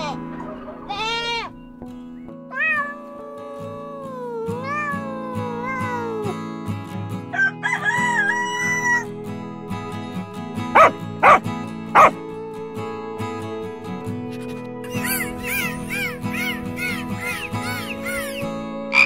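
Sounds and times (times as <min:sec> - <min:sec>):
background music: 0:00.0 - 0:19.0
cat meowing: 0:02.5 - 0:06.3
rooster crowing: 0:07.3 - 0:09.0
dog barking: 0:10.8 - 0:11.4, 0:12.0 - 0:12.2.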